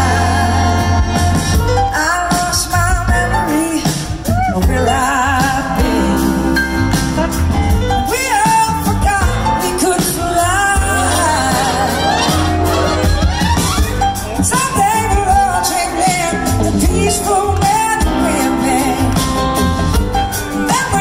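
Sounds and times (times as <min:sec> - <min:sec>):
horn section: 0:00.0 - 0:02.2, 0:05.6 - 0:19.7
woman singing with vibrato: 0:00.0 - 0:06.6, 0:08.0 - 0:13.1, 0:14.4 - 0:19.2, 0:20.6 - 0:21.0
live rock band playing: 0:00.0 - 0:21.0.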